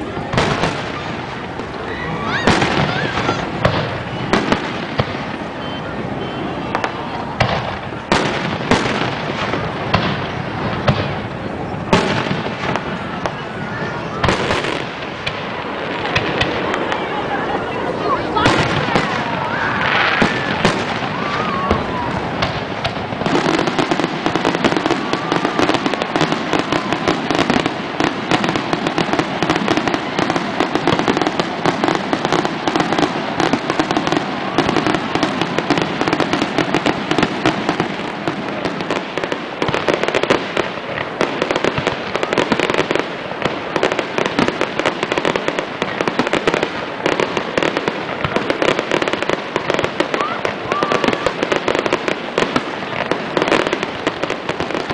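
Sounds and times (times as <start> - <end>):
fireworks popping and crackling: 0.0 - 54.9.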